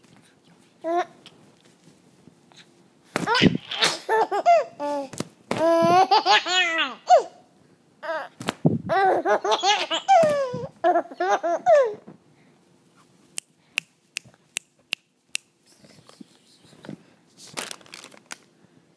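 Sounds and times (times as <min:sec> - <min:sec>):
baby laughing: 0:03.2 - 0:07.4, 0:08.0 - 0:12.0.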